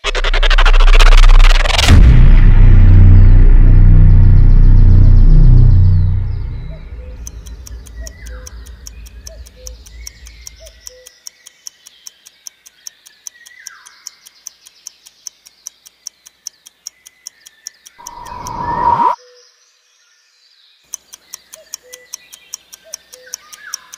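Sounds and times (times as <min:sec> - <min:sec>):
low rumble: 0:00.0 - 0:08.9
countdown timer ticking: 0:06.6 - 0:19.0, 0:21.0 - 0:23.9
downward-sliding whistled calls: 0:18.0 - 0:19.4.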